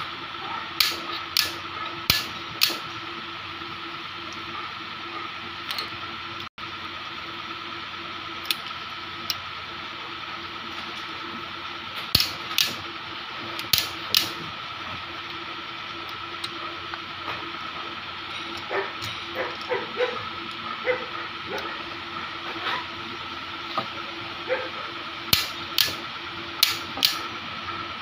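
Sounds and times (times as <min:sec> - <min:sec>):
steady background hum: 0:00.0 - 0:28.0
torque wrench clicking: 0:00.8 - 0:03.0, 0:08.4 - 0:09.4, 0:12.0 - 0:12.8, 0:13.5 - 0:14.4, 0:25.3 - 0:26.0, 0:26.6 - 0:27.3.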